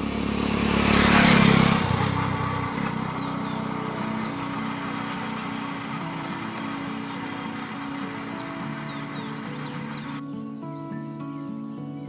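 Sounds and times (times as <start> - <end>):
motor vehicle passing by: 0.0 - 10.2
background music of held notes: 3.7 - 12.0.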